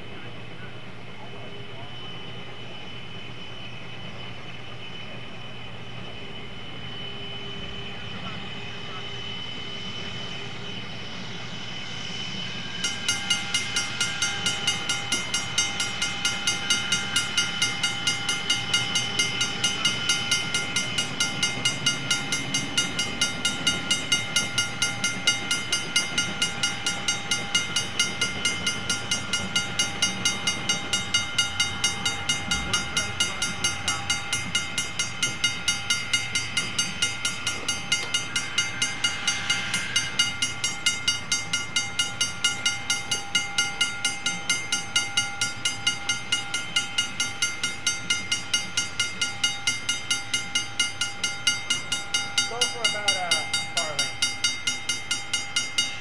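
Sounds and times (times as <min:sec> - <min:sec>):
railroad bell ringing: 0:00.0 - 0:56.0.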